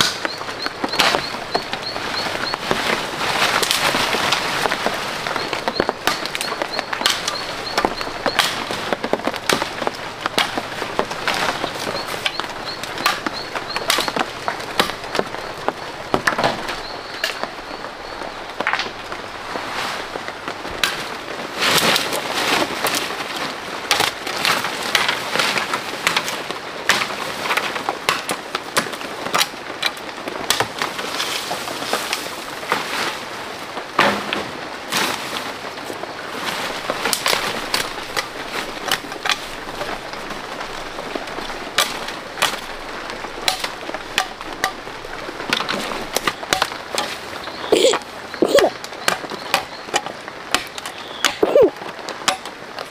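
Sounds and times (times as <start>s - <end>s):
dry wood cracking: 0.0s - 17.6s, 34.9s - 52.9s
undergrowth crackling underfoot: 0.0s - 52.9s
machete chopping branches: 5.8s - 12.4s, 13.0s - 15.0s, 43.4s - 44.8s.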